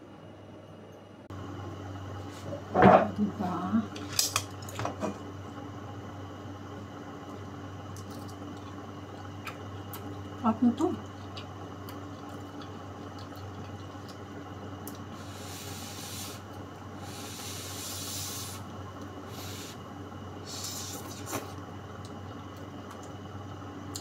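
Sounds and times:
steady low hum: 0:00.0 - 0:24.0
person slurping noodles: 0:20.5 - 0:21.5.

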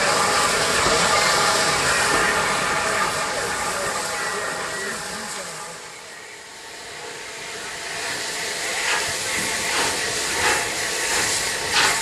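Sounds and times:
steam hissing: 0:00.0 - 0:12.0
steam locomotive exhaust puffs: 0:00.0 - 0:12.0.

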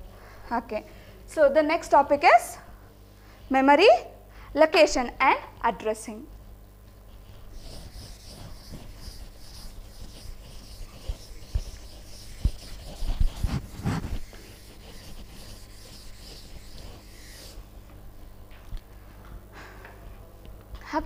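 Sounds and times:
duster rubbing on chalkboard: 0:07.1 - 0:17.7.

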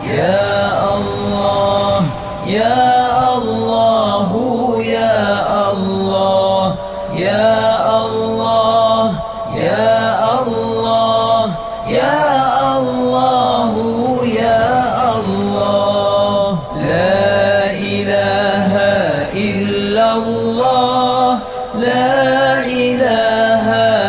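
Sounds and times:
person chanting: 0:00.0 - 0:24.0.

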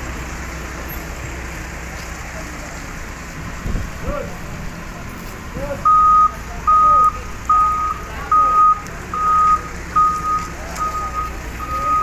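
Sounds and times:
low engine rumble: 0:00.0 - 0:12.0
reversing alarm beeping: 0:05.9 - 0:12.0.

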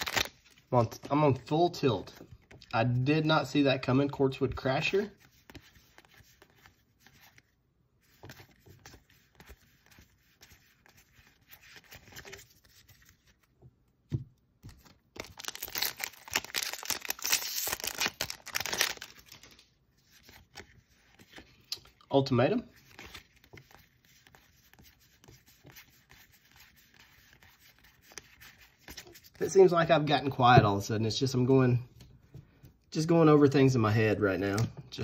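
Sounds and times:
cards rustling: 0:00.0 - 0:03.1, 0:04.7 - 0:22.0, 0:22.6 - 0:29.7.

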